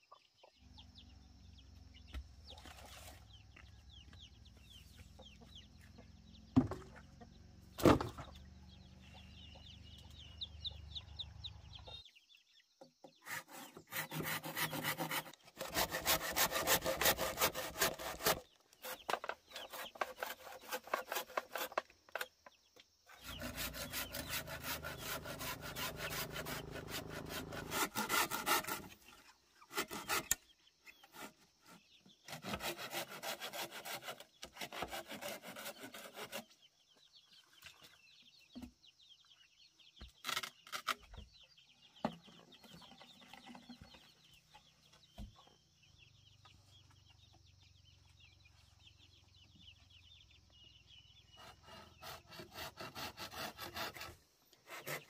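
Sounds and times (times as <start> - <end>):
saw cutting through wood: 13.2 - 21.9, 23.1 - 36.6, 51.3 - 55.0.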